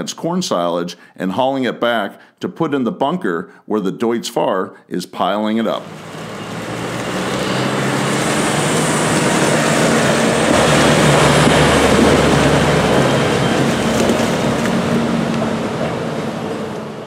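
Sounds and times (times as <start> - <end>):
tractor diesel engine running: 5.8 - 17.0.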